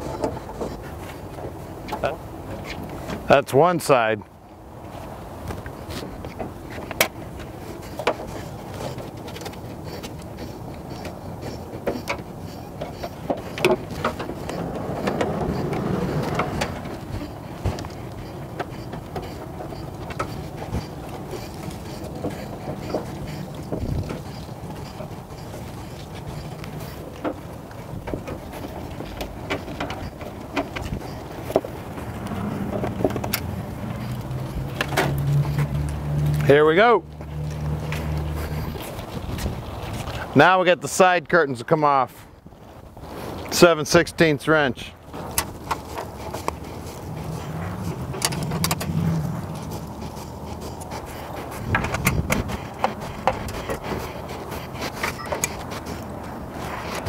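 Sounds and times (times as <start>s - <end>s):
steady low hum: 44.6s - 57.0s.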